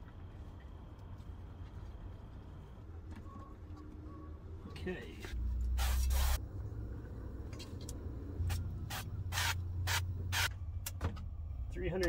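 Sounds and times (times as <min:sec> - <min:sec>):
oil sprayer hissing: 0:05.7 - 0:06.4, 0:08.5 - 0:10.5.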